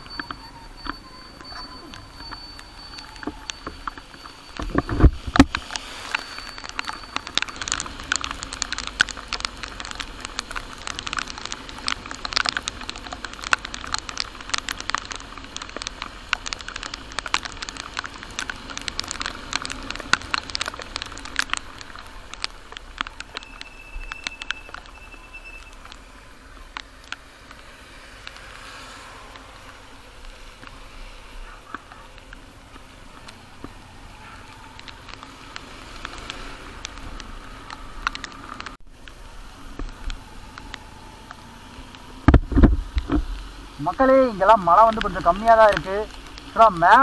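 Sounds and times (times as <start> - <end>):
motorcycle and wet road noise: 0.0 - 47.0
raindrops pattering on camera: 0.0 - 47.0.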